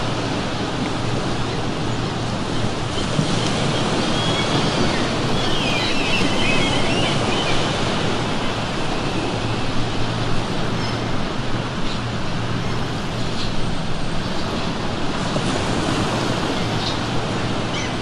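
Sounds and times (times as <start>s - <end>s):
ocean surf washing on shore: 0.0s - 18.0s
seagull cries: 17.6s - 18.0s.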